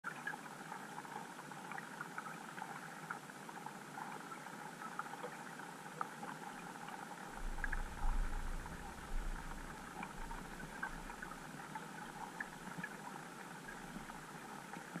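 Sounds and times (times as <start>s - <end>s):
low rumble: 7.4s - 11.4s.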